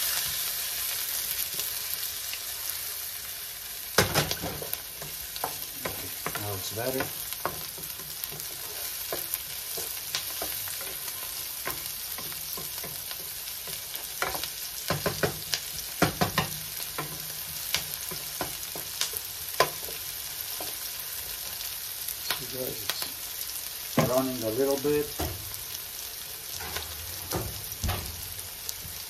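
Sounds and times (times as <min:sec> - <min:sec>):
onions sizzling in a frying pan: 0:00.0 - 0:29.0
wooden spatula scraping a pan: 0:04.3 - 0:21.6.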